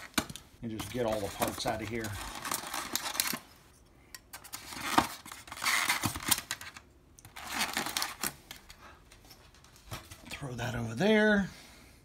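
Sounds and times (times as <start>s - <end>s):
foam packaging rustling and scraping: 0.0s - 3.7s, 4.4s - 10.3s.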